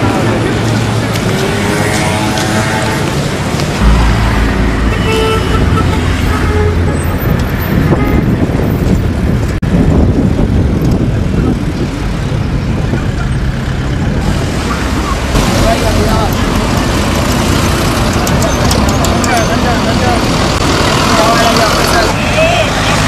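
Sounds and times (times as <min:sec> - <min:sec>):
dense road traffic: 0:00.0 - 0:23.0
car horn toot: 0:04.7 - 0:08.4.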